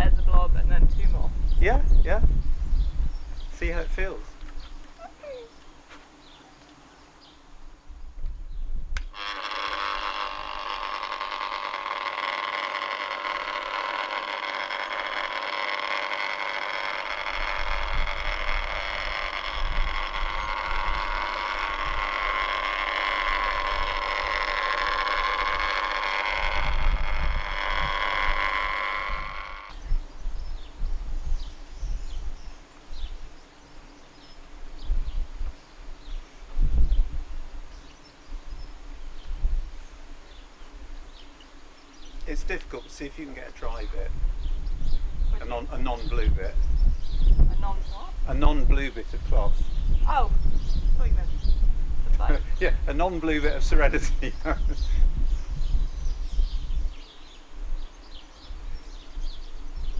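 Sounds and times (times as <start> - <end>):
electric polisher motor running: 9.0 - 30.7.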